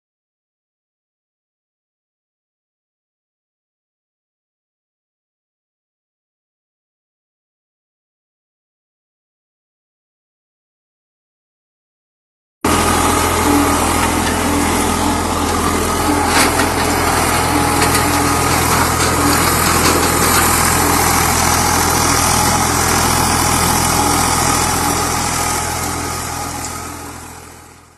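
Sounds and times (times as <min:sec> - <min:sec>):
tractor engine running: 0:12.6 - 0:27.9
rotary tiller churning soil: 0:12.7 - 0:27.9.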